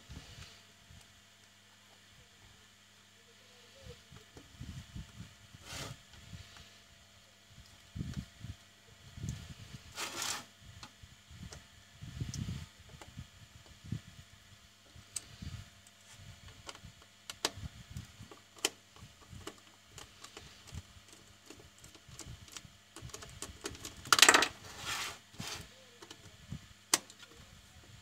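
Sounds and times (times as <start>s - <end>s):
loud scrape: 5.6s - 6.0s, 9.9s - 10.5s, 24.6s - 25.7s.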